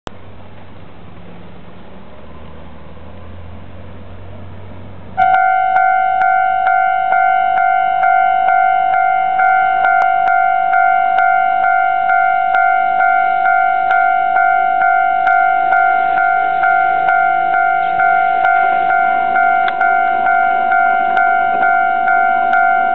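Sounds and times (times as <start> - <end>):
level crossing warning bell: 5.2 - 22.9.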